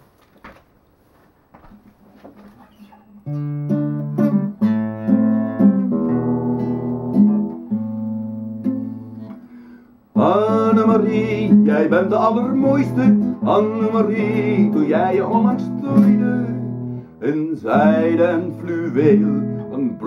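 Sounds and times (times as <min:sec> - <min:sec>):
classical guitar chords: 0:03.1 - 0:20.0
man singing: 0:10.1 - 0:20.0.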